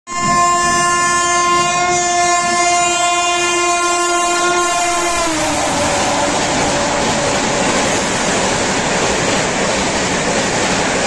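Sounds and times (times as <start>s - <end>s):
train horn blast: 0.1s - 8.1s
train coaches rushing by: 3.9s - 11.0s.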